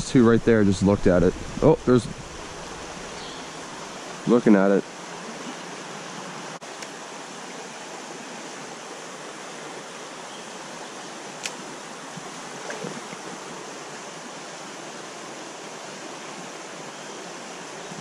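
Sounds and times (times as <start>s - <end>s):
creek water flowing: 0.0s - 18.0s.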